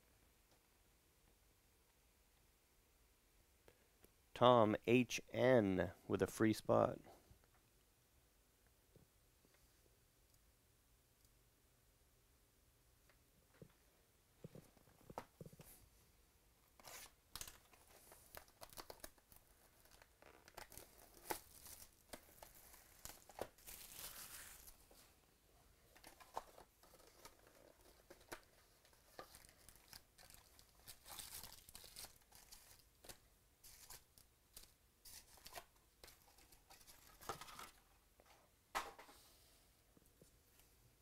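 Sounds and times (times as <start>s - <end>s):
wrapping tearing and crinkling: 16.8s - 24.9s, 26.0s - 37.8s.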